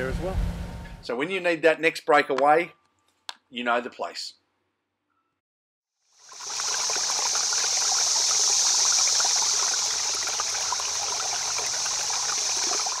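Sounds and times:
stream babbling: 0:06.2 - 0:13.0.

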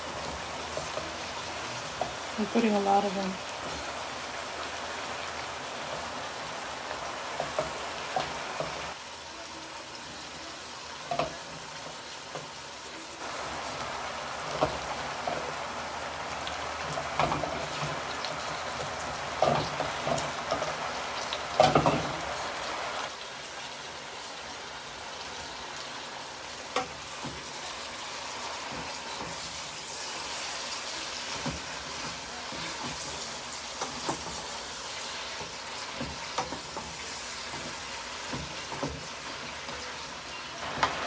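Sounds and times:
vegetables sizzling in a frying pan: 0:00.0 - 0:41.0
wooden spoon scraping a pan: 0:26.8 - 0:40.0.

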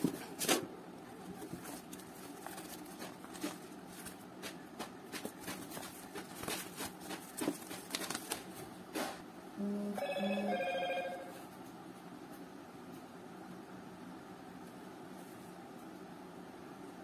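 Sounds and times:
paper rustling and crinkling: 0:00.0 - 0:08.7.

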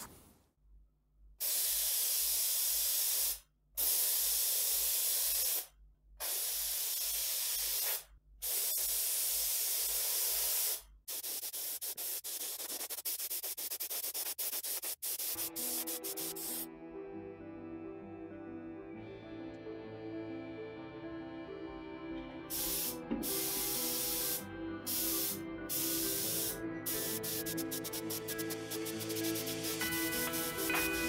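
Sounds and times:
spray gun hissing: 0:01.4 - 0:16.7, 0:22.5 - 0:31.0.

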